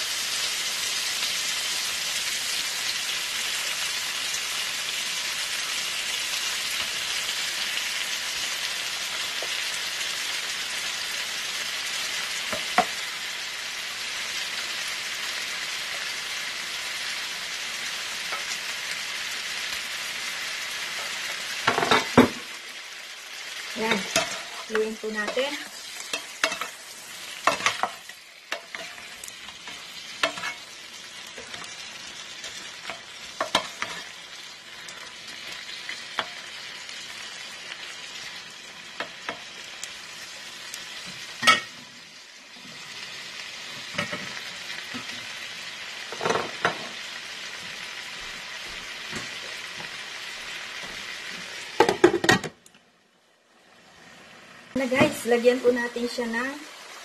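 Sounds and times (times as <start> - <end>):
shrimp sizzling in skillet: 0.0 - 57.0
wooden spoon scraping skillet: 23.8 - 31.8, 32.4 - 34.2.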